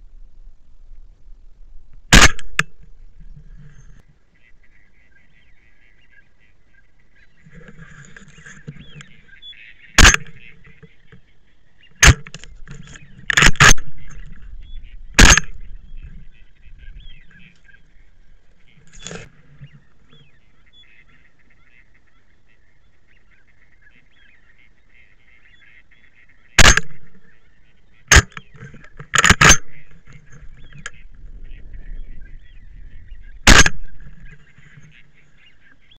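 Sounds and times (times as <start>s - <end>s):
waterfowl calling: 3.6s - 36.0s
loud gunshots echoing: 10.0s - 10.4s, 15.2s - 15.6s, 26.6s - 27.2s, 33.5s - 33.9s.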